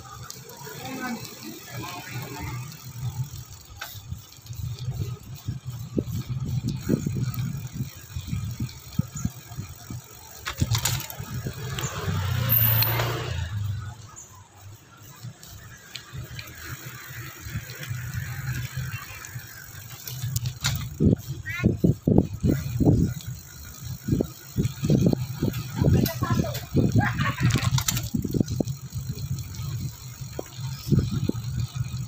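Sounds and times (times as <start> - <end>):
motor scooter passing: 0.0 - 32.0
wind and road noise: 0.0 - 32.0
bicycle knocks: 20.0 - 21.0.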